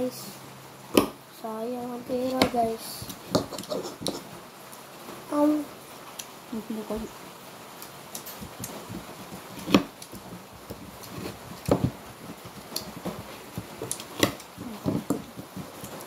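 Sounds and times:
fork scraping on plate: 3.4 - 4.3.

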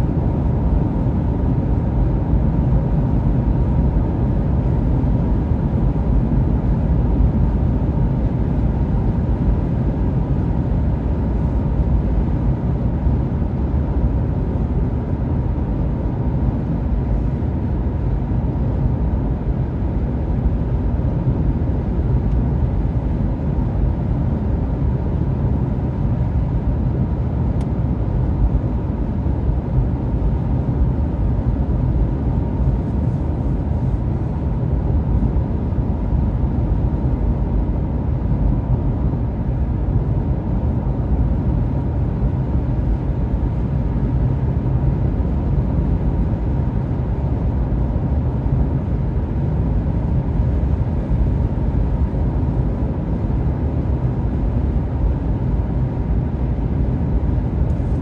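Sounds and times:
road and tyre noise: 0.0 - 58.0.

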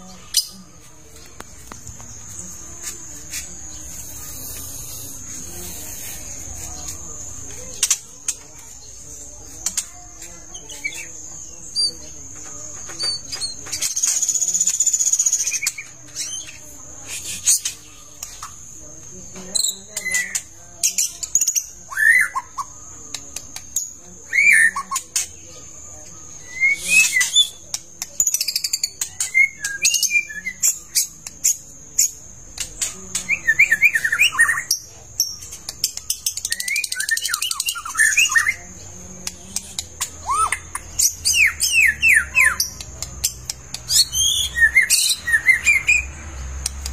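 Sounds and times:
bird whistled calls and song: 19.6 - 22.8, 23.5 - 25.3, 26.3 - 32.2, 32.8 - 38.7, 39.5 - 46.1
sharp clicks: 46.6 - 46.9.

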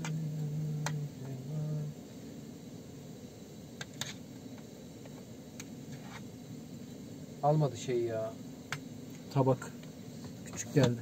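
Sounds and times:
man humming: 0.0 - 2.0.

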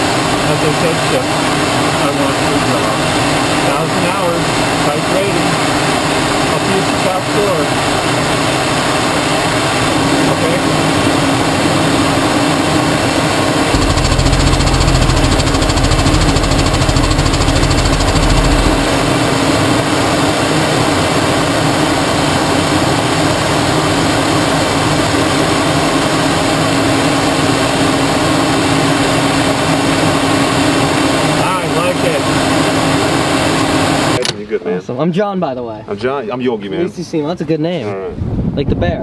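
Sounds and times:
jet engine and air rush: 0.0 - 34.2
deep low rumble: 13.7 - 19.9.

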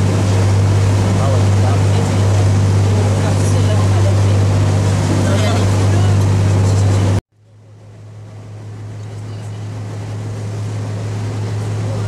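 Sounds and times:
boat engine hum: 0.0 - 12.0.

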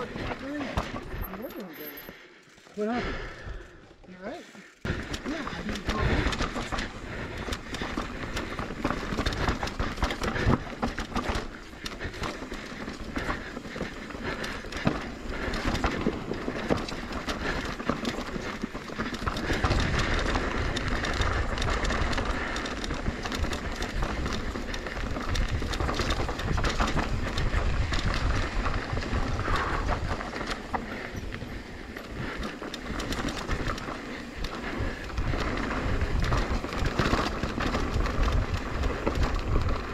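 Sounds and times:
bike clattering over rocks: 4.9 - 39.9
tyre noise: 4.9 - 39.9
wind rumble on microphone: 19.0 - 33.9, 34.5 - 39.9.

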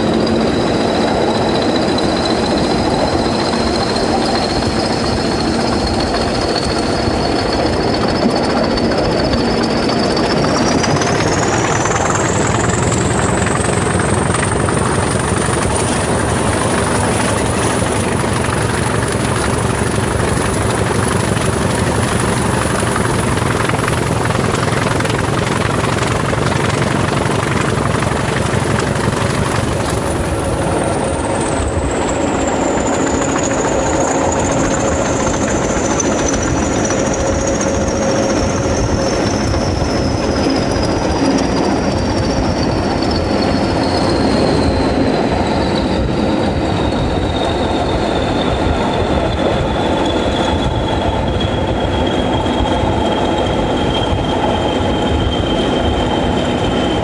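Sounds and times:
diesel locomotive engine clatter: 0.0 - 57.0
turbocharger whistle: 29.2 - 57.0.

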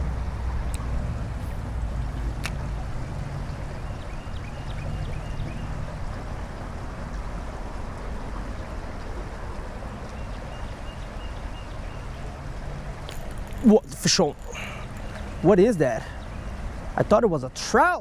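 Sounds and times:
creek water rushing: 0.0 - 18.0.

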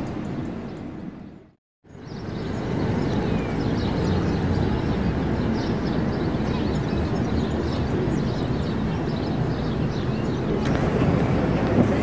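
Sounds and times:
small birds chirping: 0.0 - 10.9
city traffic rumble: 0.0 - 12.0.

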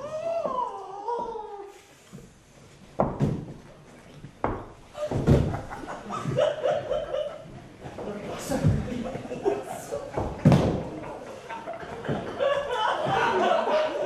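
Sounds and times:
body thudding onto gym mats: 2.9 - 5.9.

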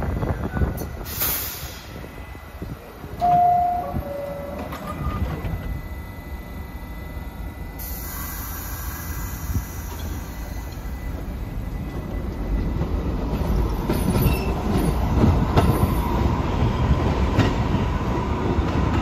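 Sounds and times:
subway train rumble: 0.0 - 19.0
air hiss: 1.0 - 2.0
two-note door-closing chime: 3.2 - 5.6.

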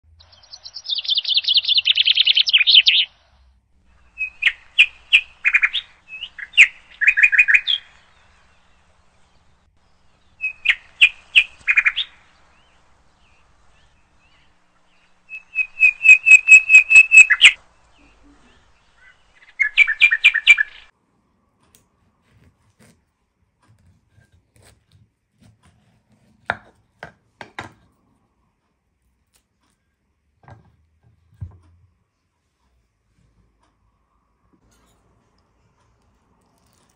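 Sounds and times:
songbird singing trills: 0.1 - 3.3, 4.0 - 20.9.

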